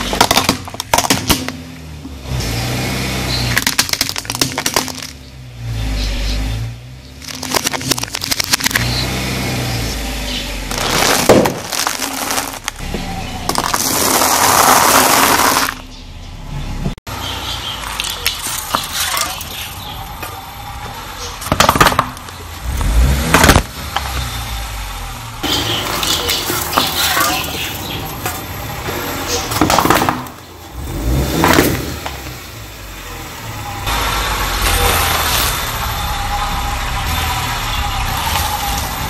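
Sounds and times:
plastic toy cracking under tyre: 0.0s - 1.6s, 3.6s - 5.2s, 7.2s - 8.9s, 10.7s - 12.8s, 21.4s - 22.4s
car engine rumble: 0.0s - 39.0s.

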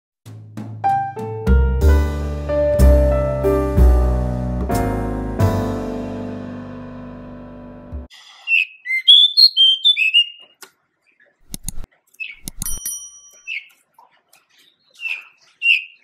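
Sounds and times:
bird singing whistled notes: 8.5s - 10.4s, 15.0s - 16.0s
sharp clicks: 11.4s - 12.8s.

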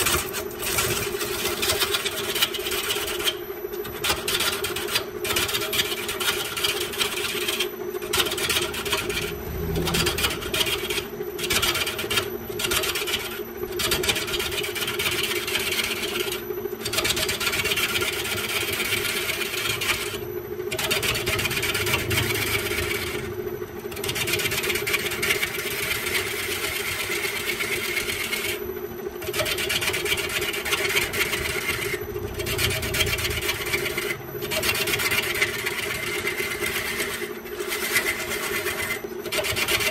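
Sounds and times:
gouge scraping spinning wood: 0.0s - 28.6s, 29.2s - 39.9s
wood lathe humming: 5.8s - 16.3s, 24.0s - 28.6s, 29.2s - 39.8s.

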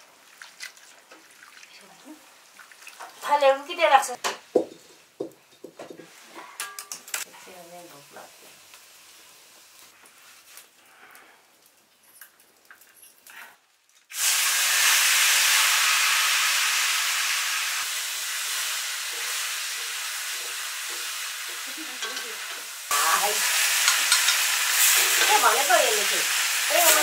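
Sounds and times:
food sizzling in hot oil: 7.0s - 10.7s, 14.1s - 27.0s.

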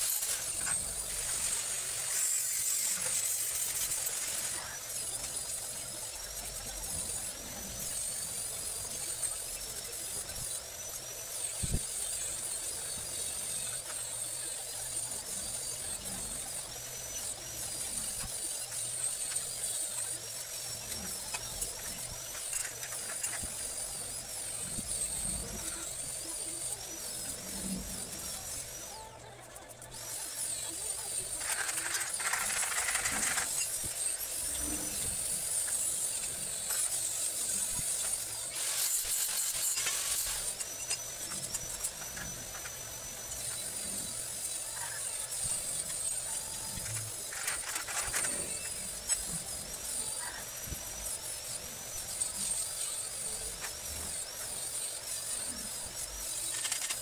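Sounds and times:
arc welding bursts: 0.0s - 57.0s.

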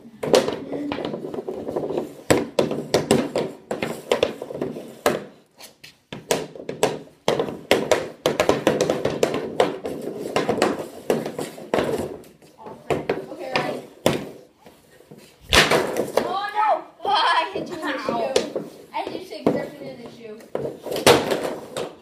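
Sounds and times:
hockey sticks slapping pucks: 0.0s - 22.0s
pucks knocking off pad and walls: 0.2s - 5.5s, 6.1s - 16.8s, 17.4s - 22.0s.

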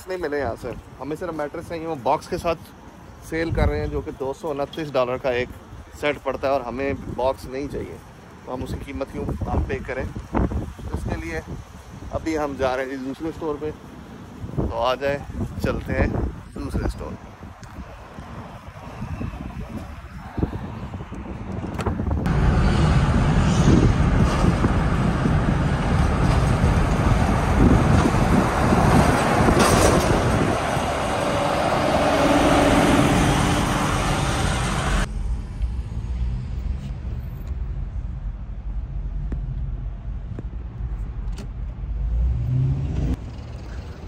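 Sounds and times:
road and engine noise: 0.0s - 44.0s.

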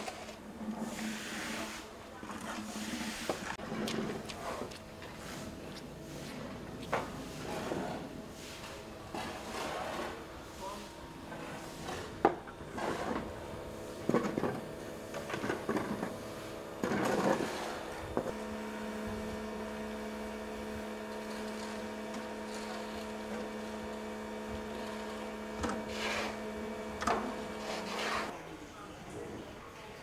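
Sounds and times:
motor hum: 11.2s - 28.3s.

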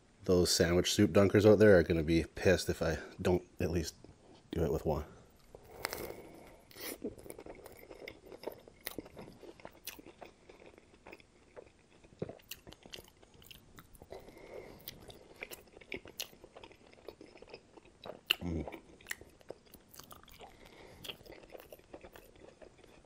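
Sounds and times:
soft crunches of toasted bread: 4.2s - 23.0s
chewing and biting sandwich: 5.3s - 23.0s.

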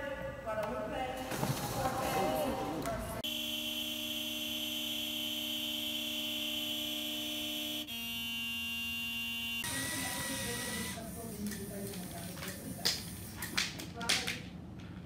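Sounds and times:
car horn blaring: 3.2s - 10.0s.

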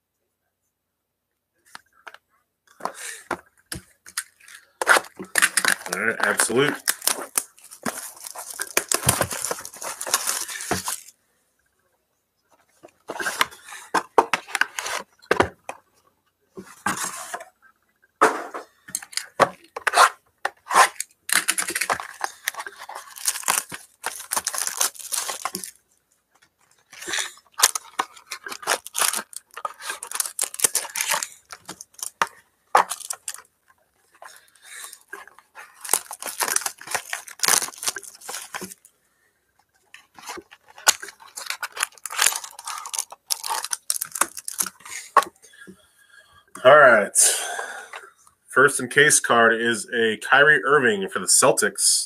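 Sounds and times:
card wrappers ripping and crinkling: 4.1s - 11.1s, 13.1s - 15.5s, 18.9s - 25.8s, 26.6s - 33.5s, 34.1s - 38.9s, 39.9s - 45.3s.

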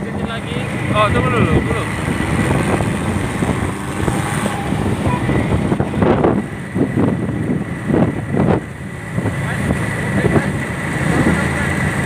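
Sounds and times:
moving vehicle rumble: 0.0s - 12.0s
wind buffeting microphone: 0.0s - 12.0s.

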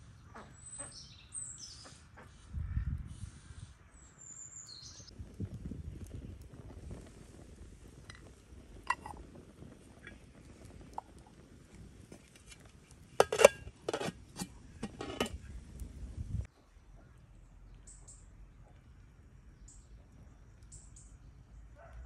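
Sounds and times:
cookware clinking and knocking: 8.9s - 9.2s, 13.2s - 15.4s.

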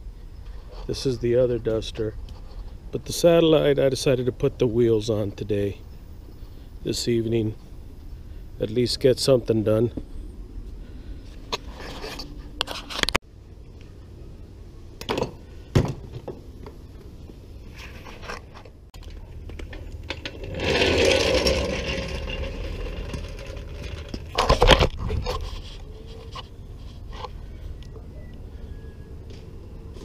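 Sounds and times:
steel wheels clanking and scraping: 19.0s - 27.3s.

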